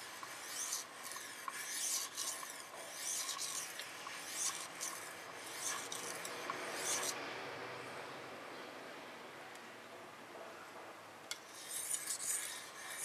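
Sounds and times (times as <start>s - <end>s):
knife scraping on sharpening stone: 0.0s - 7.2s, 11.5s - 13.0s.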